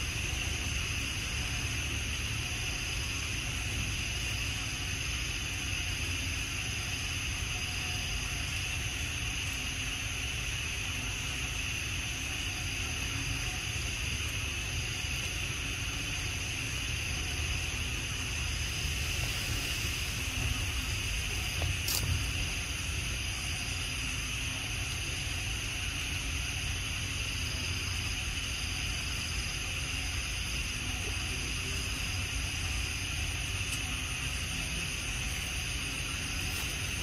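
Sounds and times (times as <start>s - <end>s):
insect chorus: 0.0s - 37.0s
low rumble: 17.3s - 24.4s.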